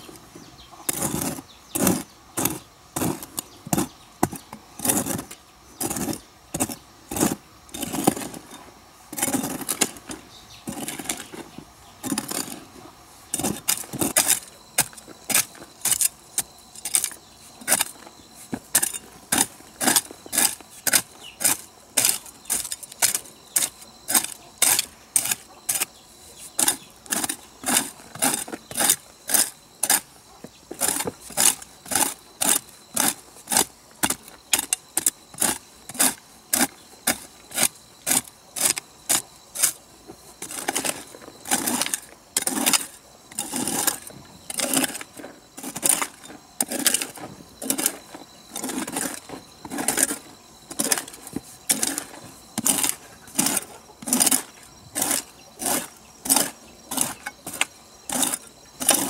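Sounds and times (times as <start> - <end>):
hand tool striking: 13.3 - 39.8, 40.4 - 59.0.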